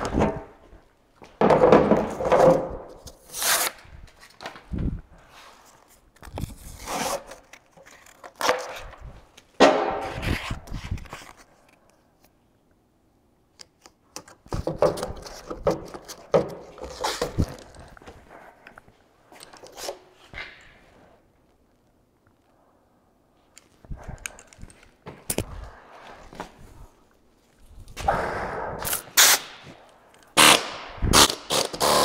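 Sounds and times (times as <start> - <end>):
sandpaper tearing: 3.2 - 3.8, 28.9 - 29.5.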